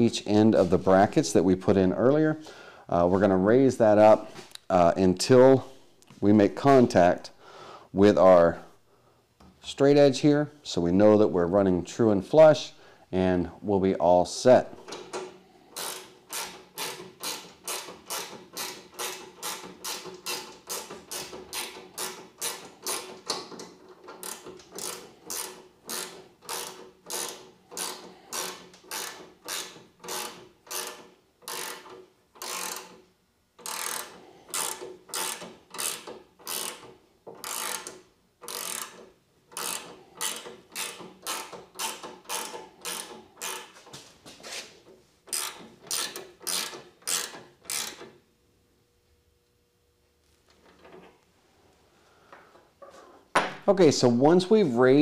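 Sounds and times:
ratchet wrench clicking: 0:14.9 - 0:23.4, 0:24.1 - 0:33.0, 0:33.6 - 0:43.7, 0:45.3 - 0:48.1.

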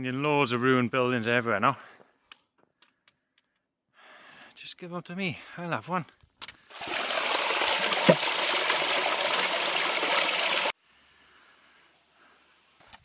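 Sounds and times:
stream water splashing over rocks: 0:06.7 - 0:10.7
water filling a plastic bottle: 0:06.7 - 0:10.7.

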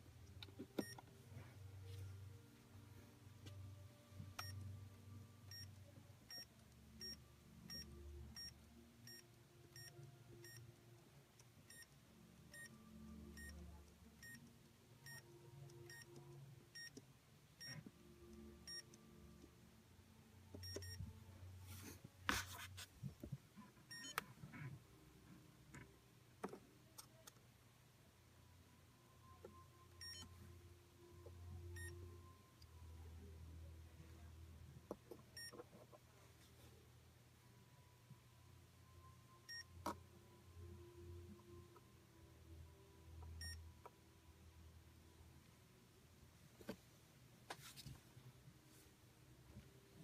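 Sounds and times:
short faint electronic beeps: 0:20.6 - 0:21.1, 0:23.9 - 0:24.2, 0:29.2 - 0:30.4.

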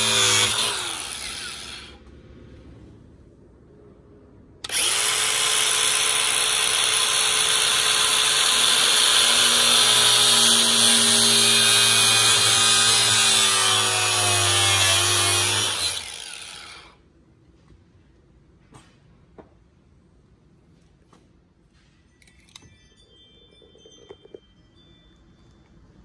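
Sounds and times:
angle grinder cutting plastic: 0:00.0 - 0:02.0, 0:04.6 - 0:17.0.

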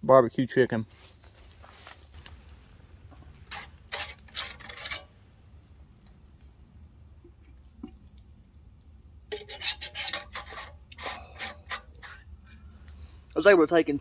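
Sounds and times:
rustling and rubbing from handling: 0:00.9 - 0:05.1
short scraping strokes: 0:03.4 - 0:05.1, 0:09.3 - 0:12.6.

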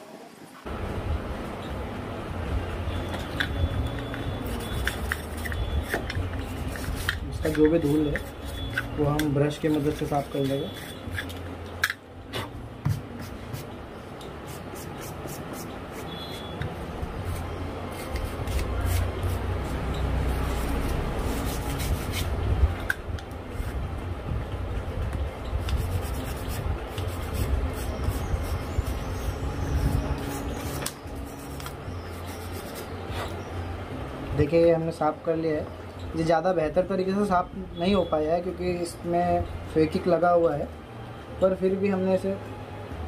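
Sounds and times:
toothbrush scrubbing phone frame: 0:04.5 - 0:11.4.

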